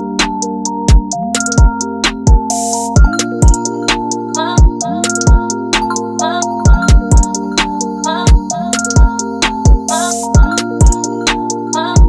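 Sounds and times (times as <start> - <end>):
deep kick drum: 0.9 - 3.6, 6.7 - 7.3, 8.3 - 9.1, 9.7 - 11.0.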